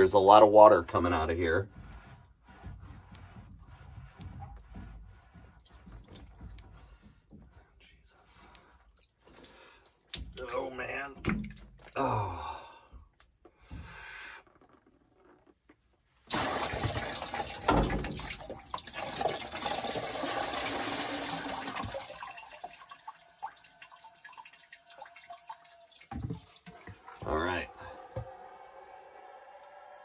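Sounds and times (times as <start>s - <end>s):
water pouring into plastic bucket: 8.8s - 12.1s, 16.2s - 29.8s.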